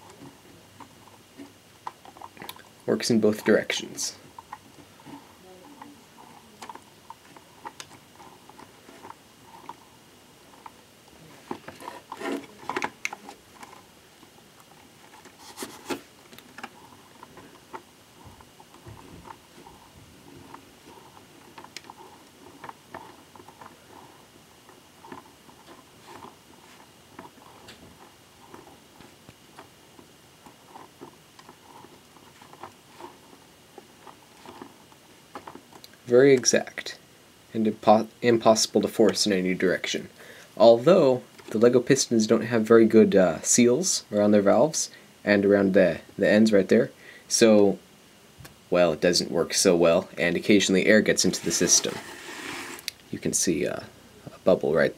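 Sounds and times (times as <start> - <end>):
plastic clatters: 10.5 - 36.5
plastic pump clicking and rattling: 11.4 - 23.8.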